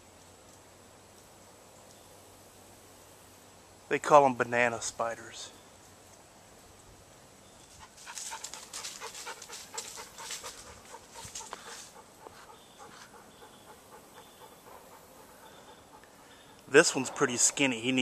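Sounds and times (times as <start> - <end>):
dog panting: 7.8 - 17.7.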